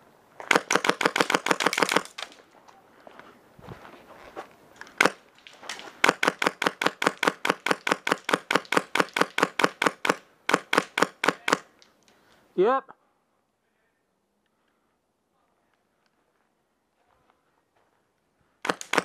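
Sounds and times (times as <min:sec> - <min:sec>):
airsoft gun shots: 0:00.5 - 0:02.2, 0:05.0 - 0:05.2, 0:06.0 - 0:11.7, 0:18.6 - 0:19.0.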